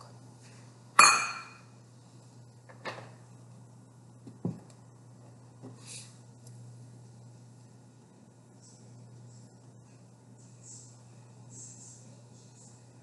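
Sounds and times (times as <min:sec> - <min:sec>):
steady low hum: 0:00.0 - 0:13.0
metal cup clink: 0:01.0 - 0:01.6.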